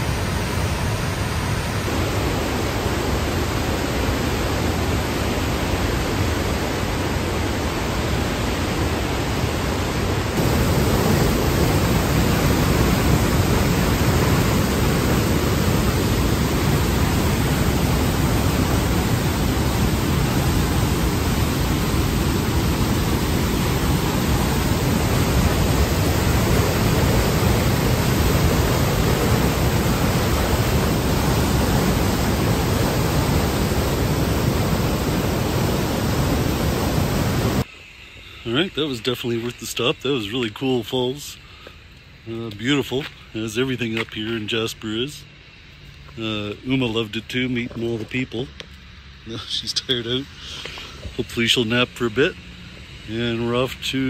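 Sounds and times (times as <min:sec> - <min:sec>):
waterfall rushing: 0:00.0 - 0:37.6.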